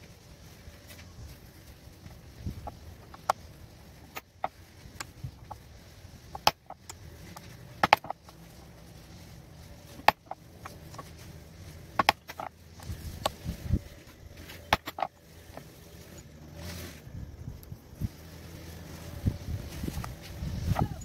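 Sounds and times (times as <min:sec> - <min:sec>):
metal stamps clicking on stone: 0:07.8 - 0:08.2.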